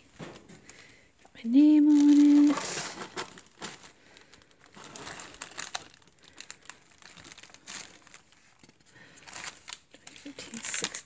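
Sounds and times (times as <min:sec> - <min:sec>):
packaging and paper crinkling: 0:01.6 - 0:11.0.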